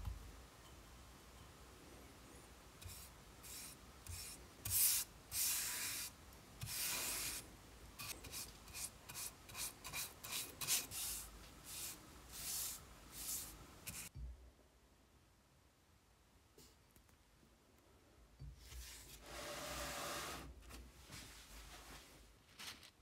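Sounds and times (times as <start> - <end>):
paintbrush swishing on wood: 8.0 - 14.1.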